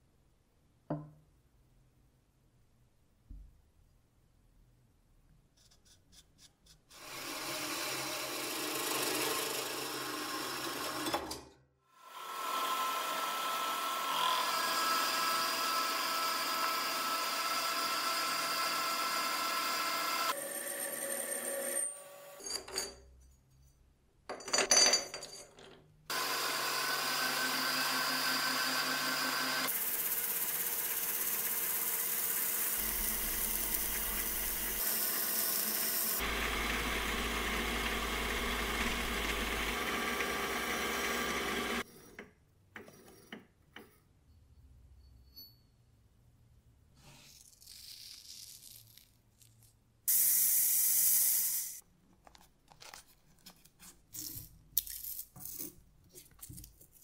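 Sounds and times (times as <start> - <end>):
lathe cutting hiss: 28.8 - 38.5.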